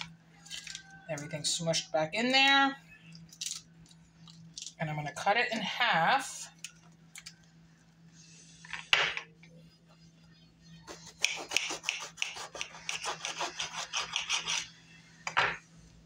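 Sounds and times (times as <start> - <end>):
knife sawing through bread: 10.9 - 14.7.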